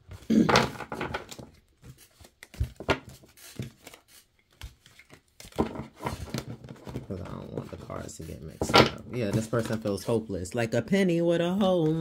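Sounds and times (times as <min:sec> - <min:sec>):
cards snapping and rustling: 0:00.1 - 0:07.1.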